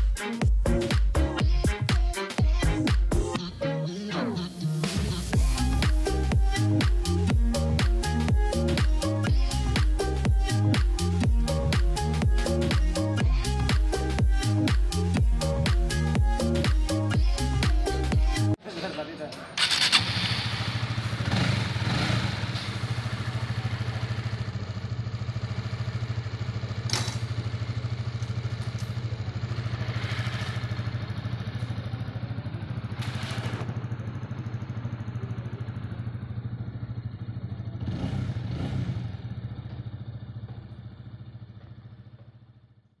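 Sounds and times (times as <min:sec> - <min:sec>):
motorcycle engine idling: 0:05.2 - 0:18.6, 0:19.6 - 0:43.0.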